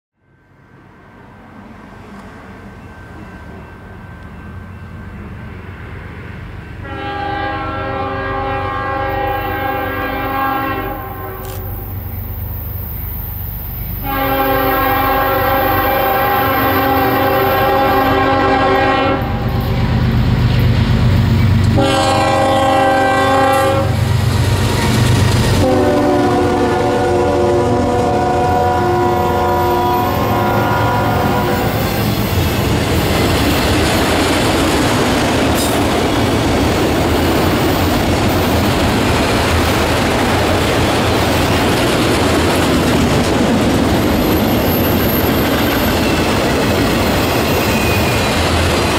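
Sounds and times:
diesel locomotive rumble: 0:06.0 - 0:48.9
locomotive air horn blasts: 0:06.8 - 0:11.8, 0:14.0 - 0:19.6, 0:21.7 - 0:24.1, 0:25.6 - 0:31.8.

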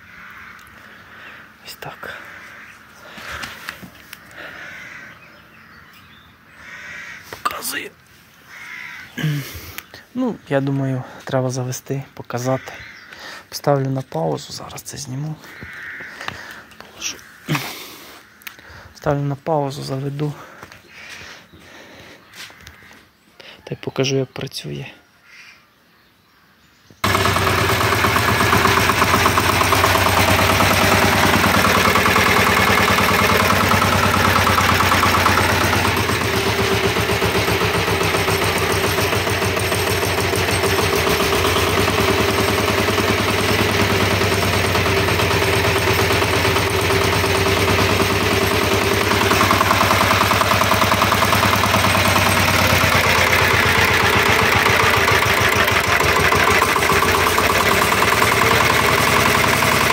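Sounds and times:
diesel engine running: 0:27.0 - 0:59.9.

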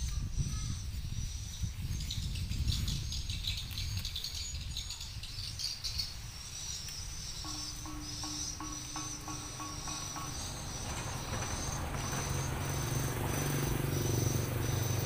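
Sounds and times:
insects trilling: 0:02.9 - 0:15.0
low hum: 0:07.4 - 0:15.0.

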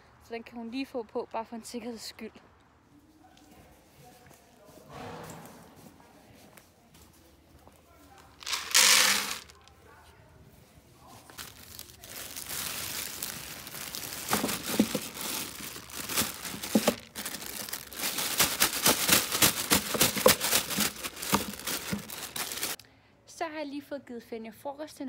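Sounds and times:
plastic bags crinkling: 0:08.3 - 0:09.7, 0:11.1 - 0:22.8.

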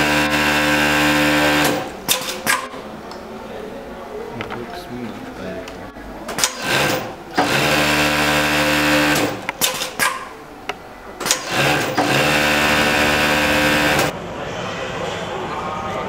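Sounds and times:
sewing machine running fast: 0:00.0 - 0:01.9, 0:06.4 - 0:10.0, 0:11.2 - 0:14.1
sharp clicks: 0:09.1 - 0:12.1.

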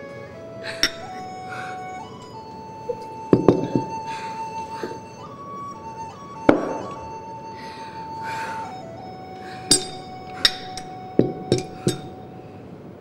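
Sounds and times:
background music with held notes: 0:00.0 - 0:13.0
drinking glasses clinking: 0:00.8 - 0:01.3, 0:02.2 - 0:04.1, 0:09.7 - 0:12.2.

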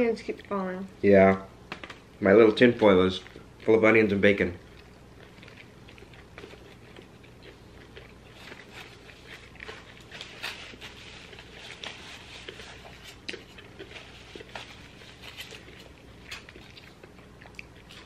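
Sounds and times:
chewing and mouth smacks: 0:01.7 - 0:03.8, 0:04.4 - 0:18.0.

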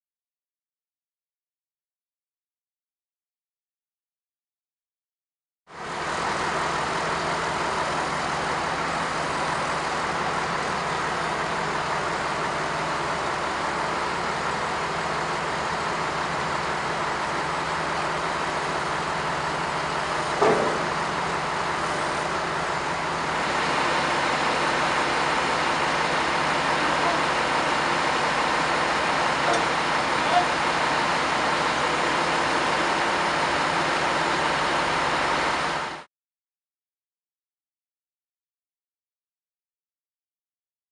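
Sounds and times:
diesel engine running: 0:05.7 - 0:36.1
brief knock: 0:20.4 - 0:20.9.

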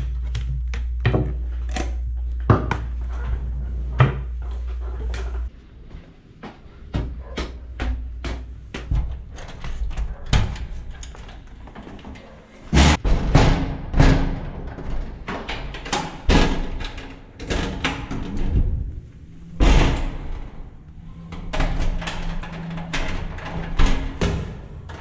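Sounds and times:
low steady hum: 0:00.0 - 0:15.8, 0:16.6 - 0:25.0
footsteps on tiled stairs: 0:04.3 - 0:13.0.

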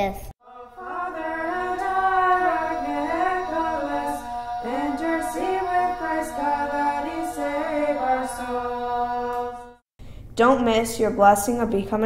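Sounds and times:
woman singing chant-like melody: 0:00.5 - 0:08.4
held drone note: 0:00.5 - 0:09.8.

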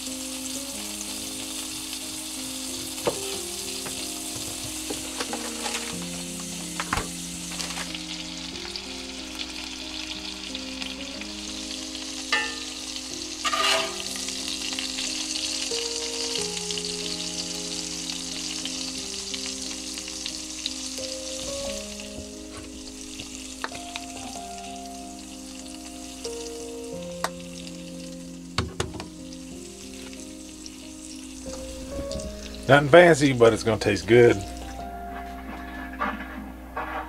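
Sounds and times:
food sizzling in a skillet: 0:00.0 - 0:37.0
soft background music: 0:00.0 - 0:37.0
scraping in a skillet: 0:03.8 - 0:08.8, 0:12.1 - 0:15.2, 0:21.4 - 0:24.3, 0:34.6 - 0:37.0.

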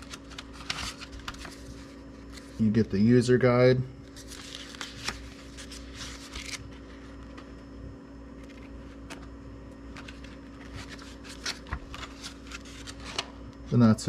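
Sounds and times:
paper rustling: 0:00.0 - 0:02.7, 0:04.0 - 0:07.5, 0:08.4 - 0:09.3, 0:09.9 - 0:13.3
steady low hum: 0:00.0 - 0:14.0.

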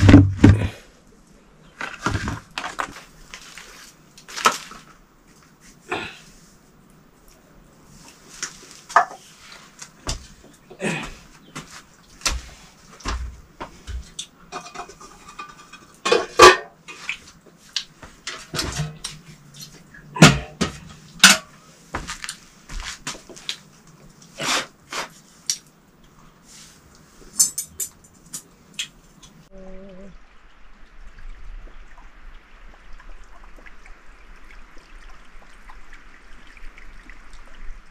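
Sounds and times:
metal utensils and dishes clattering: 0:13.9 - 0:17.1, 0:18.2 - 0:21.5, 0:27.3 - 0:28.5.

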